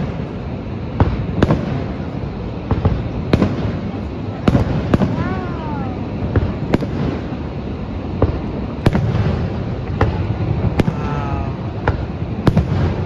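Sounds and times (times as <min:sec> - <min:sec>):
fireworks bangs: 0:00.0 - 0:13.0
waterfall roar: 0:03.8 - 0:13.0.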